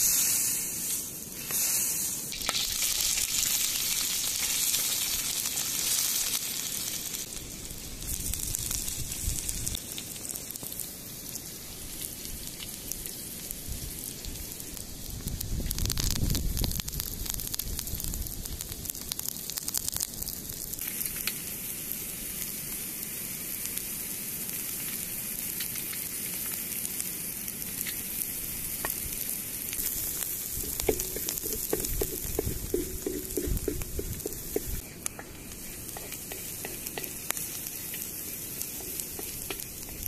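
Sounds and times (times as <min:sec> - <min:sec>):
oil sizzling in a metal pan: 0:00.0 - 0:40.0
oil popping: 0:02.3 - 0:05.0, 0:29.7 - 0:40.0.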